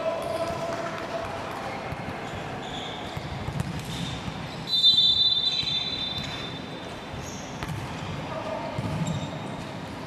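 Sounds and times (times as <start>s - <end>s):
ball bouncing on hard floor: 3.2s - 4.1s, 7.6s - 7.9s
referee's whistle: 4.7s - 6.6s.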